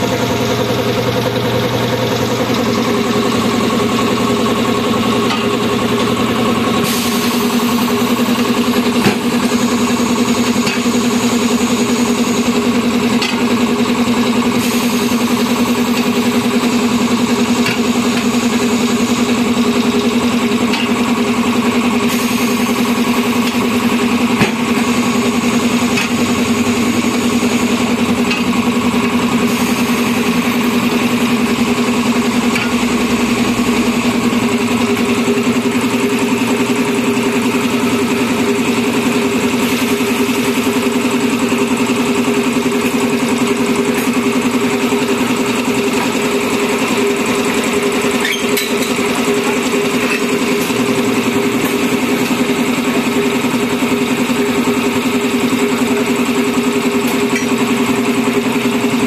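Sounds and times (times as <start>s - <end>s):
air compressor droning: 0.0s - 59.0s
air hissing: 6.7s - 12.6s, 14.5s - 20.4s, 22.0s - 26.0s.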